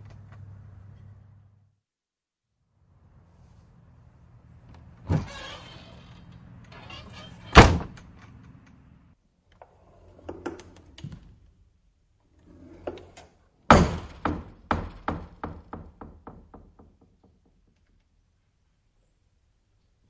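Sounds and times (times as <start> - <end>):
door rattling against frame: 5.0 - 8.4
screen door slapping shut: 5.0 - 8.4.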